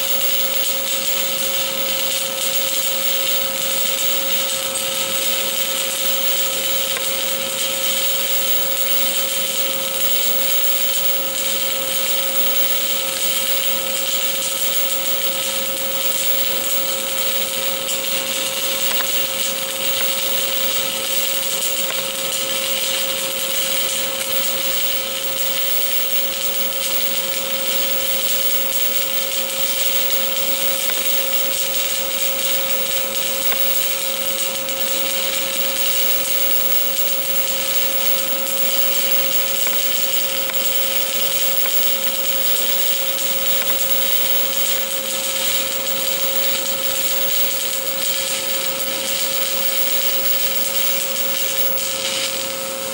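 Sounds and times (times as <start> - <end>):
welding arc crackling hiss: 0.0 - 52.9
steady whine: 32.6 - 52.9.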